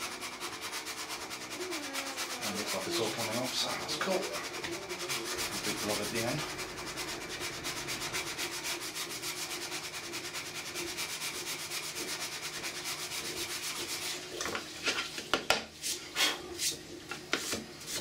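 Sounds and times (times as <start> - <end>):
file rasping on plastic: 0.0 - 14.2
sharp knocks and scrapes: 0.0 - 16.0, 16.6 - 18.0.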